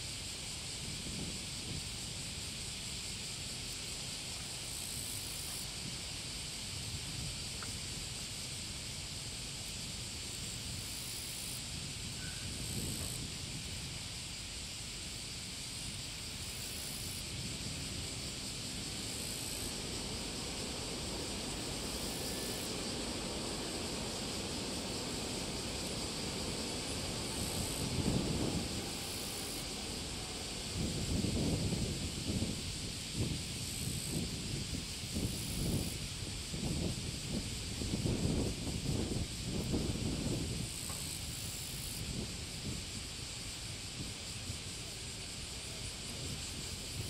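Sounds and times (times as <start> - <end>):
distant airliner rushing on runway: 16.4 - 35.1
wind buffeting microphone: 17.2 - 41.4.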